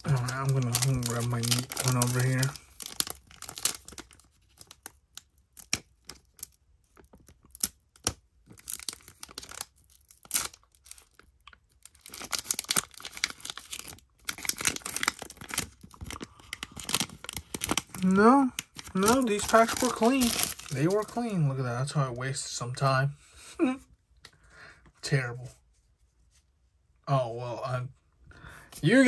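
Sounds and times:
foil wrapper tearing: 0.0 - 21.2
foil wrapper crinkling: 0.0 - 21.3.

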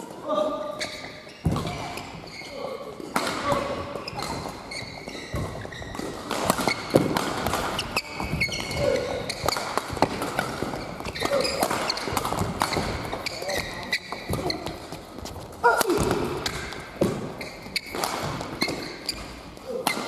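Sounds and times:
shoes squeaking on court floor: 0.6 - 20.0
racket striking shuttlecock: 5.3 - 13.3.

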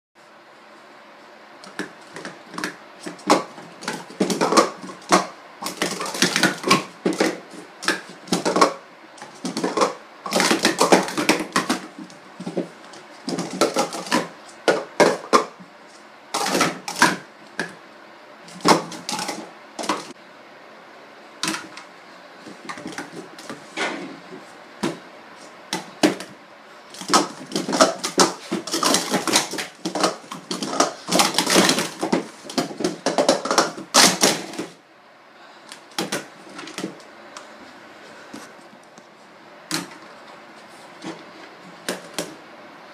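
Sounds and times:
plastic cups clacking: 1.6 - 15.6, 16.4 - 17.8, 18.5 - 20.2, 21.4 - 23.6, 25.7 - 34.8, 35.8 - 37.0.

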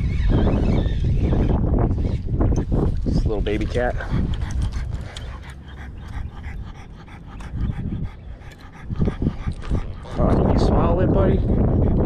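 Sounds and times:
wind rumble on microphone: 0.0 - 12.0
dog panting: 3.4 - 12.0.

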